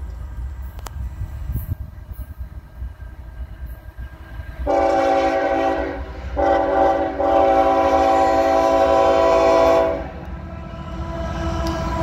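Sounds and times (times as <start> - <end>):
low rumble of train: 0.0 - 12.0
train air horn blasts: 4.6 - 12.0.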